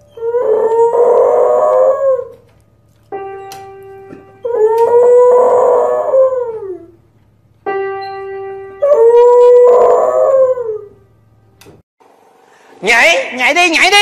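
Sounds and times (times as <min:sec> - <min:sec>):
dog howling: 0:00.0 - 0:02.5, 0:04.1 - 0:07.0, 0:08.8 - 0:11.0
piano chord ringing: 0:03.1 - 0:05.1, 0:07.5 - 0:09.6.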